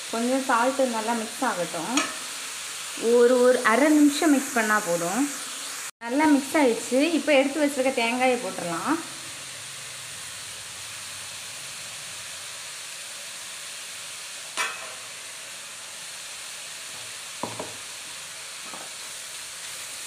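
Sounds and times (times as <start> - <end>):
carrot sizzling in metal pan: 0.0 - 20.0
soft knocks: 17.4 - 17.8.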